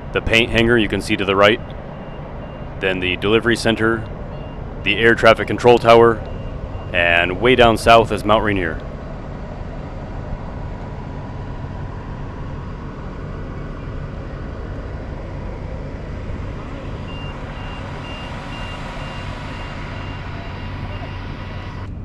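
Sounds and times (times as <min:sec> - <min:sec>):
low vehicle rumble: 0:00.0 - 0:22.0
reversing alarm beeping: 0:01.1 - 0:08.9, 0:15.2 - 0:21.9.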